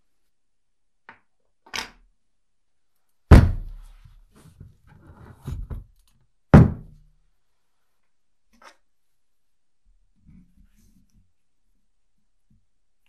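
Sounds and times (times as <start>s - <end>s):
heavy objects thudding on wood: 3.3s - 3.8s, 6.6s - 7.0s.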